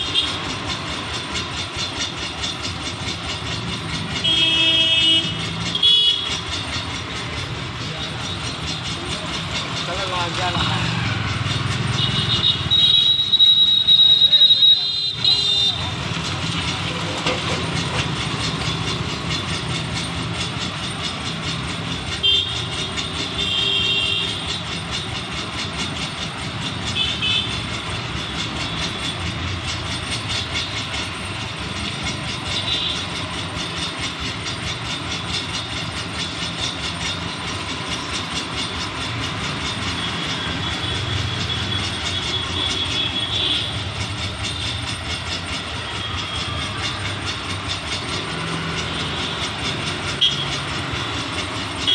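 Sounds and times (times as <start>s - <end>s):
road traffic passing: 0.0s - 51.9s
high-pitched horn toots: 11.9s - 16.0s, 50.1s - 50.6s.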